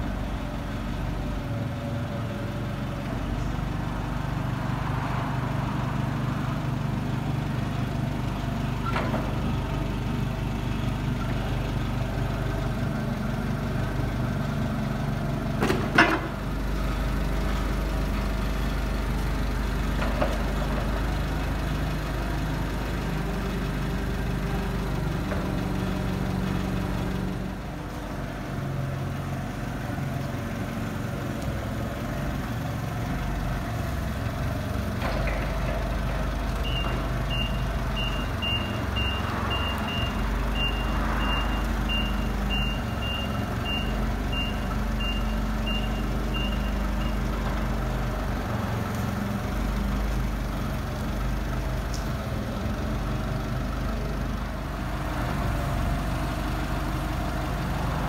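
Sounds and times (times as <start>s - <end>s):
forklift engine running: 0.0s - 58.0s
reversing alarm beeps: 36.6s - 47.2s.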